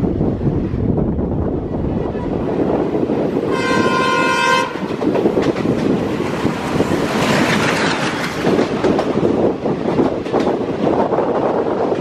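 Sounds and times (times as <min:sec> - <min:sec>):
moving train clickety-clack: 0:00.0 - 0:12.0
passing train rush: 0:00.0 - 0:12.0
locomotive horn: 0:03.5 - 0:04.9.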